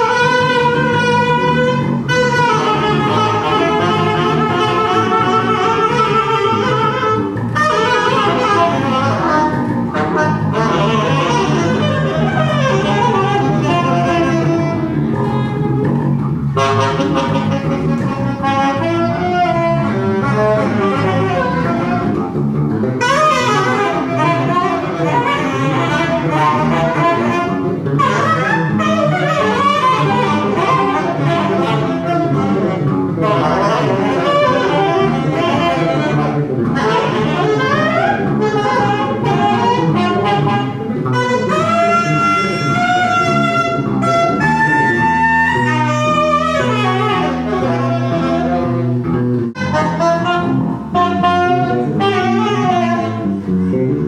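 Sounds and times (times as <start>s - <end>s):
steady low drone: 0.0s - 28.4s
jazz horns improvising: 0.0s - 54.0s
repeating low bass figure: 0.0s - 54.0s.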